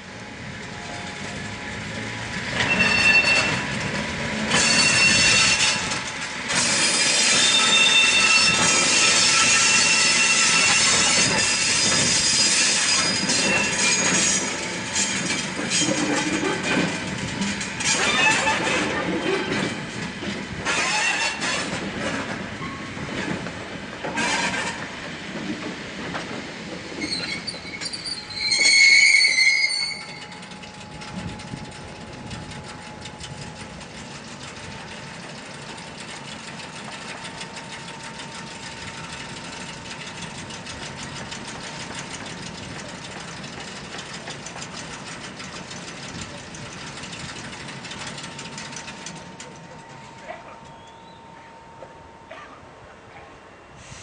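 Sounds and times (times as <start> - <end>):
train wheels clanking over rails: 1.3 - 52.4
high wheel squeal: 2.5 - 3.9, 4.5 - 17.0, 17.6 - 19.7, 20.6 - 21.6, 27.0 - 34.6, 35.4 - 51.6.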